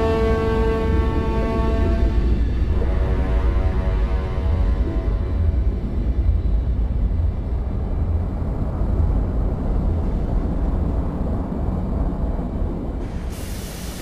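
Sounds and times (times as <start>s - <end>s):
faint hiss: 13.0s - 14.0s.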